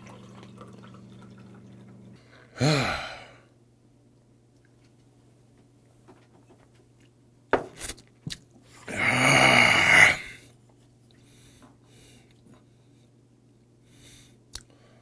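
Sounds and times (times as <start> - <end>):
person exhaling raspily: 2.2 - 3.5, 8.8 - 10.4.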